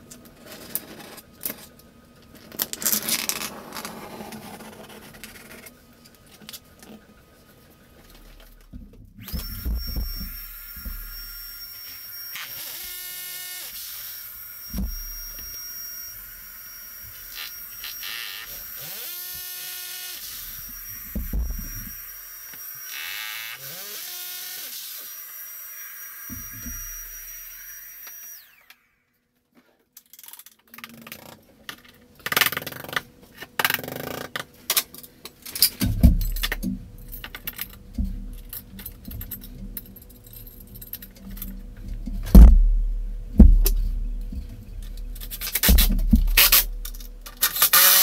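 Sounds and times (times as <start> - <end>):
handheld vacuum running: 9.2 - 25.1
drill spinning: 9.2 - 29.0, 42.3 - 48.0
loud knocks: 42.2 - 44.5.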